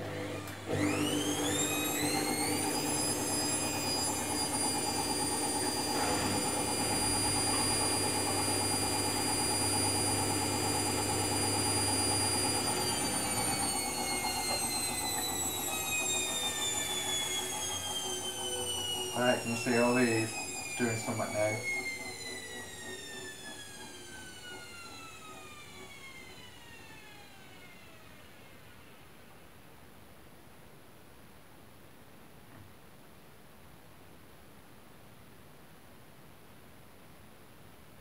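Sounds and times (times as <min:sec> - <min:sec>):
washing machine drum spinning whine: 0:00.0 - 0:29.4.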